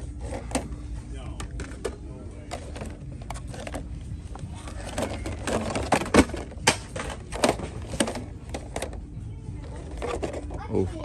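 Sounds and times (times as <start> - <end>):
low steady hum: 0.0 - 11.0
plastic packaging crinkling and clacking: 1.3 - 3.9, 4.6 - 9.0.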